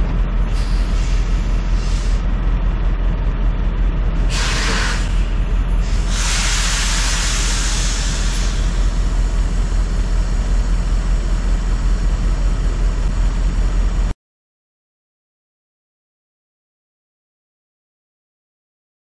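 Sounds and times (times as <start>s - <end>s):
diesel truck engine rumbling: 0.0s - 14.2s
air hissing: 0.5s - 2.2s, 4.3s - 9.1s.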